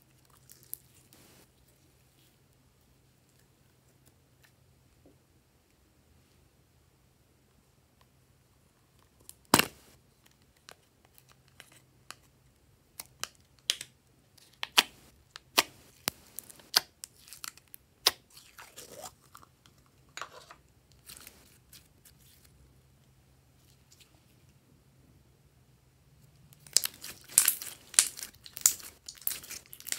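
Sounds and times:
slime sticky clicks and crackles: 26.6s - 29.9s.

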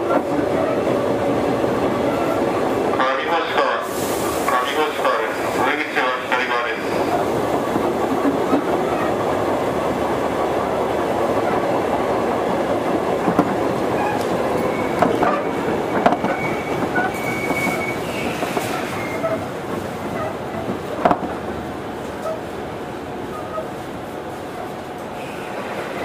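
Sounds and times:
rail joint clicks: 0.0s - 22.5s, 23.2s - 26.0s
train wheels rumbling on rail: 0.0s - 26.0s
high squeal: 14.0s - 19.4s.

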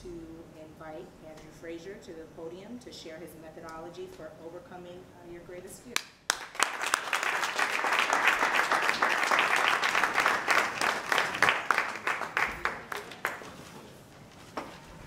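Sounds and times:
audience applauding: 6.3s - 13.6s.

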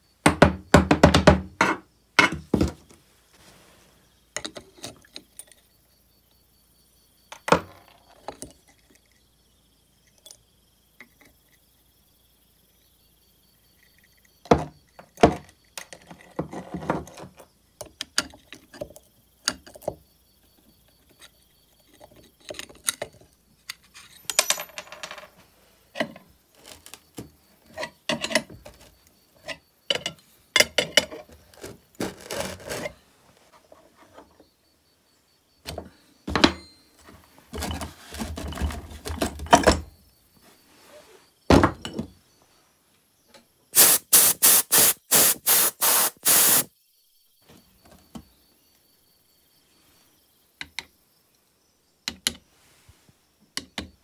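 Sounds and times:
metal tools clinking on metal: 23.7s - 25.3s.

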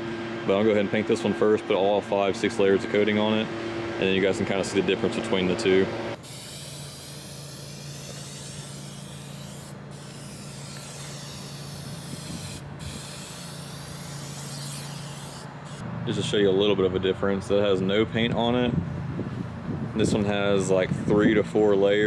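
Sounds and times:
aerosol spray can hissing: 6.2s - 15.8s.

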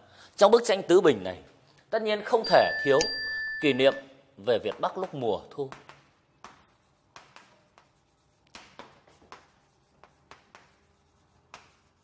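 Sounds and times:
chalk tapping and scratching: 3.7s - 12.0s.

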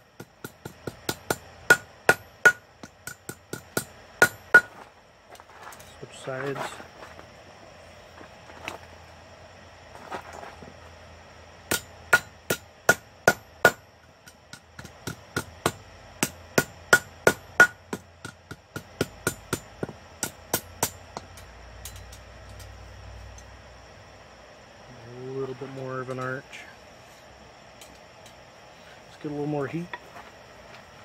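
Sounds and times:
hammer striking steel on anvil: 0.2s - 4.7s, 11.7s - 22.6s.

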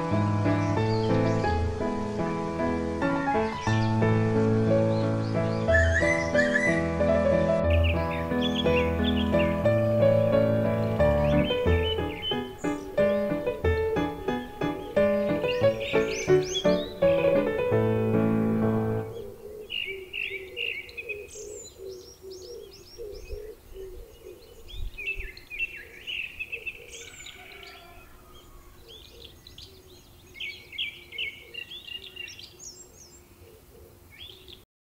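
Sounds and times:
music: 0.0s - 19.3s
birds chirping: 0.0s - 34.7s
low repeating bird note: 3.5s - 20.6s.

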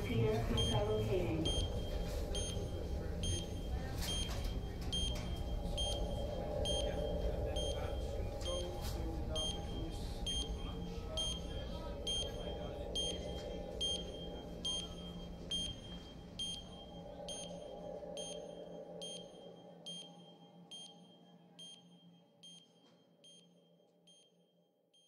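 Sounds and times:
low steady drone: 0.0s - 22.5s
high electronic beep: 0.6s - 8.0s.

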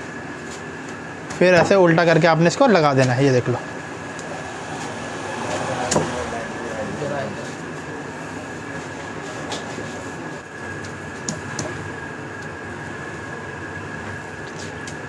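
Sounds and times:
thin high whine: 3.4s - 10.5s
mechanical drone: 3.5s - 15.0s.

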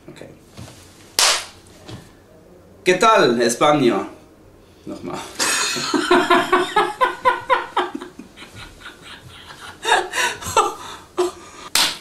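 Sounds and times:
men laughing: 5.1s - 11.7s.

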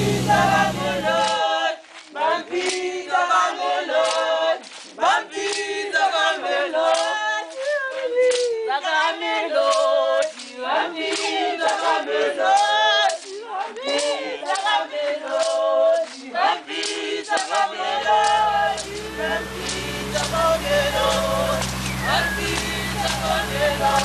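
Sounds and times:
small plane engine drone: 0.0s - 1.3s, 18.0s - 24.0s
choir singing: 0.0s - 7.5s, 8.9s - 24.0s
rhythmic hand claps: 0.0s - 24.0s.

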